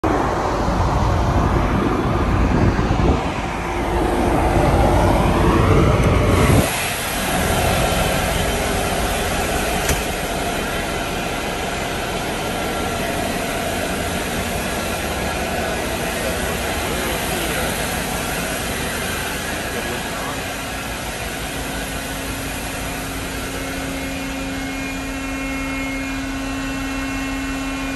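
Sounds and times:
diesel generators humming: 0.0s - 27.9s
wind on microphone: 0.1s - 8.6s.

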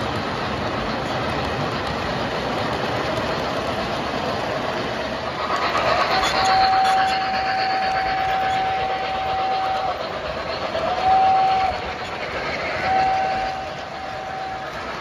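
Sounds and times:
model train wheels rumbling on rails: 0.0s - 15.0s
model steam locomotive whistle: 6.0s - 15.0s.

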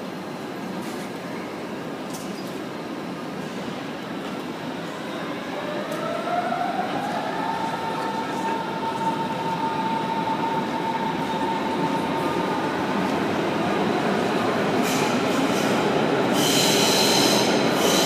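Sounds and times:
station hall rumble: 0.0s - 18.0s
electric train whine: 4.8s - 18.0s.

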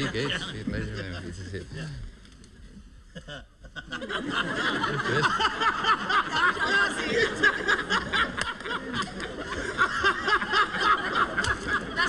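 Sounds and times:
audience laughing: 0.0s - 2.0s, 3.1s - 12.0s
man laughing heartily: 3.1s - 12.0s.

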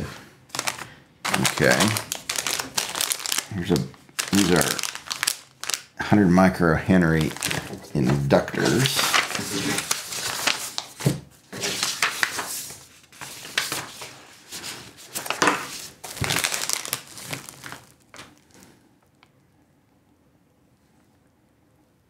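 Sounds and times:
paper and plastic bags rustling: 0.5s - 5.9s, 7.0s - 18.8s.

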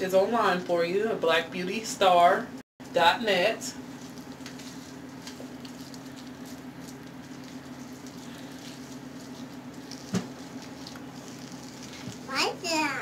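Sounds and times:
steady low hum: 0.0s - 13.0s
hands squishing through wet hair: 3.8s - 12.3s.

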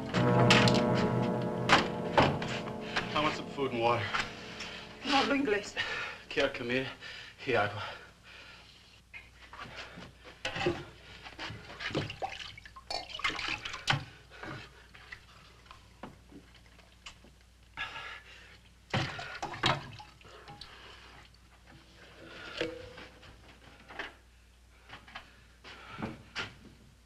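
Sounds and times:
water splashing in a wooden bucket: 11.8s - 14.0s.

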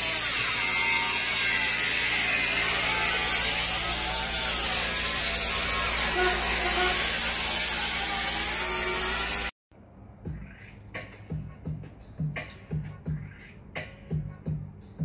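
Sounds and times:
angle grinder cutting sheet metal: 0.0s - 9.6s.

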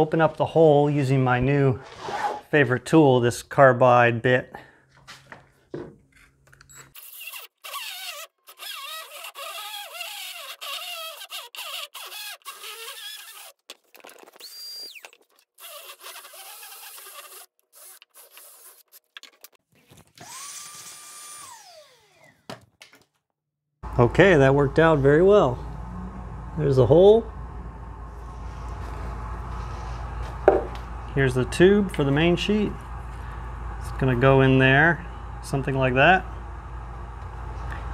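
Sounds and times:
drill grinding with squeal: 6.7s - 13.6s, 14.4s - 18.8s, 20.2s - 22.4s
vacuum running: 23.8s - 37.9s.

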